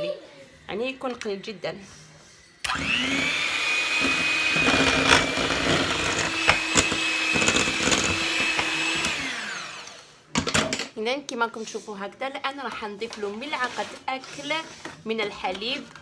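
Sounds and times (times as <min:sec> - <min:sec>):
electric hand mixer whining: 0:02.6 - 0:10.2.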